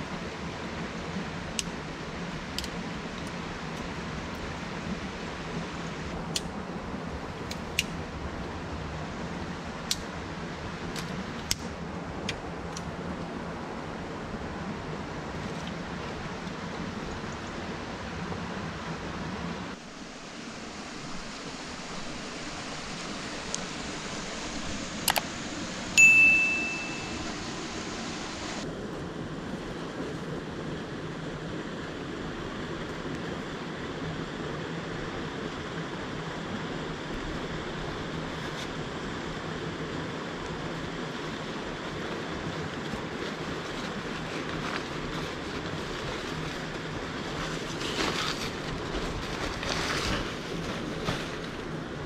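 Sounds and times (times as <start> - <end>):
rushing mountain stream: 0.0 - 52.0
bright ringing ding: 26.0 - 27.5.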